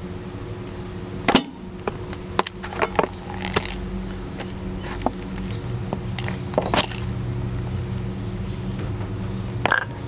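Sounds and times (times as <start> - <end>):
cardboard can crunching underfoot: 2.4 - 3.8, 4.4 - 7.2.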